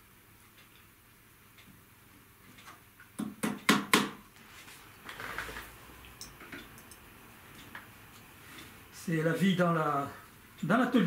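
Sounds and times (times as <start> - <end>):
hammer tapping tack into wood: 3.2 - 4.2.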